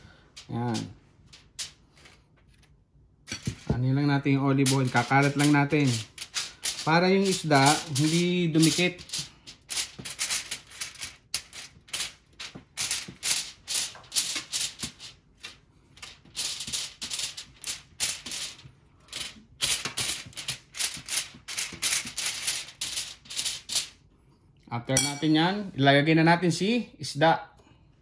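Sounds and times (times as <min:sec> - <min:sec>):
spoon scraping aluminium foil: 0:04.6 - 0:23.9.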